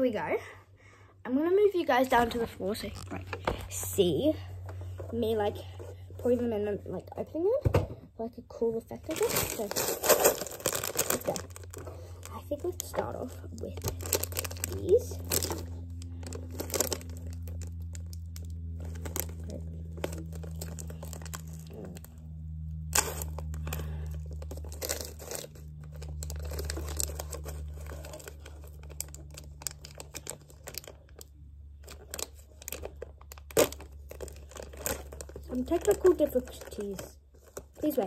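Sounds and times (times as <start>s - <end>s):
plastic snack pouch crinkling: 9.1s - 22.2s, 22.8s - 38.0s
plastic pouch ripping open: 9.1s - 38.0s.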